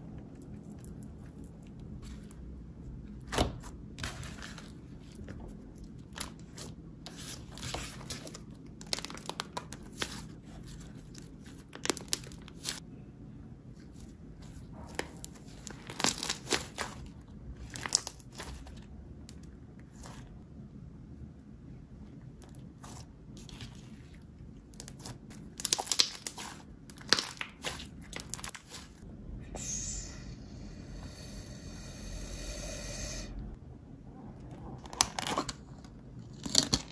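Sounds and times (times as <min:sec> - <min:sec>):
slime crackling and popping: 0:24.7 - 0:28.9.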